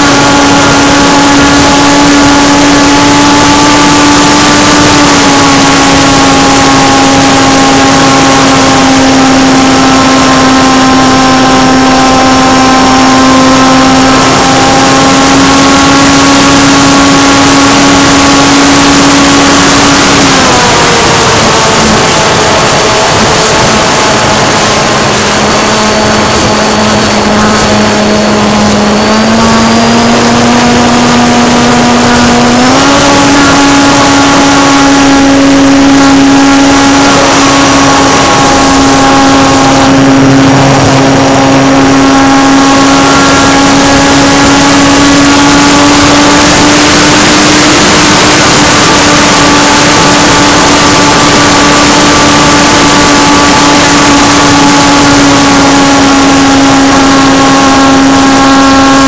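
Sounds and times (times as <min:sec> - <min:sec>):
airflow rush: 0:00.0 - 0:59.0
model plane motor whining: 0:00.0 - 0:59.0.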